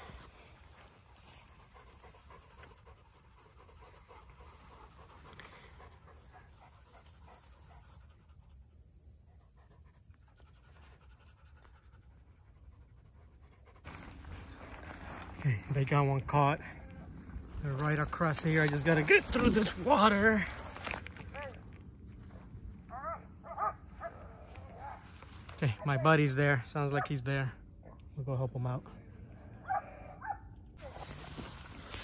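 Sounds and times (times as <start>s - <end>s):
dog panting: 0.0s - 15.4s.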